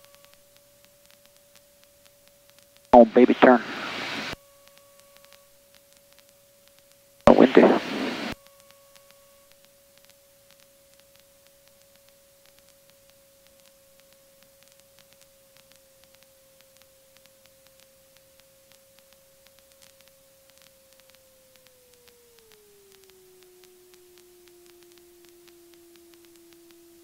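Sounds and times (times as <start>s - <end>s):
faint steady tone: 0.0s - 15.2s, 16.0s - 27.0s
faint ticks: 4.2s - 7.4s, 8.1s - 27.0s.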